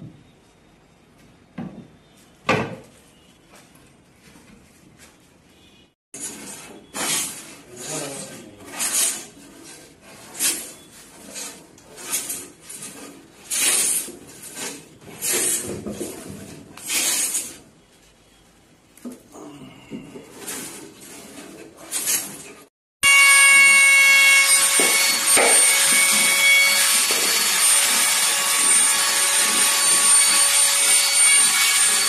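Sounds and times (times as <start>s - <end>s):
hand tool rasping wood: 6.3s - 17.6s, 24.3s - 32.0s.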